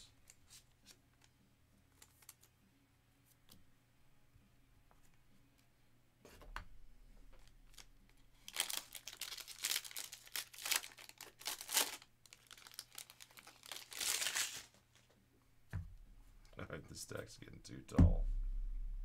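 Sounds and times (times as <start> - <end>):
foil wrapper crinkling and tearing: 7.6 - 14.8.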